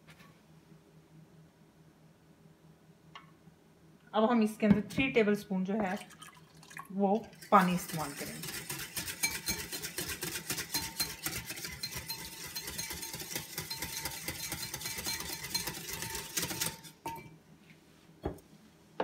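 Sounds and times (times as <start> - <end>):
whisk clinking in a bowl: 7.2 - 17.3.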